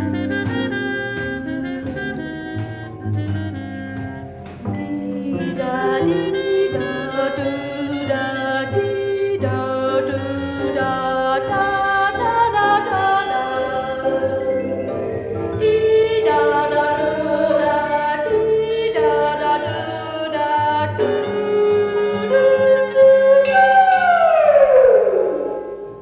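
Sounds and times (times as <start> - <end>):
low musical accompaniment: 0.0 - 26.0
sustained melodic notes: 9.6 - 21.2
falling pitch slide: 21.4 - 26.0.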